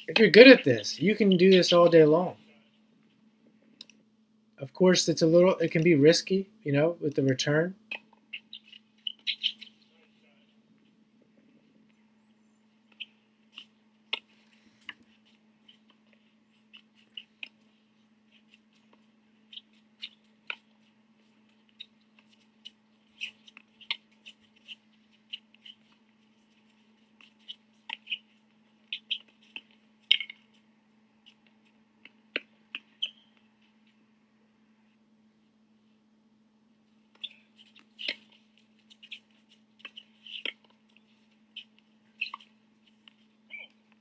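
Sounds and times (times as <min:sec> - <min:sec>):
shoes squeaking on court: 0:00.0 - 0:02.4, 0:07.3 - 0:10.9, 0:12.8 - 0:34.0, 0:37.1 - 0:44.0
steady low hum: 0:00.0 - 0:44.0.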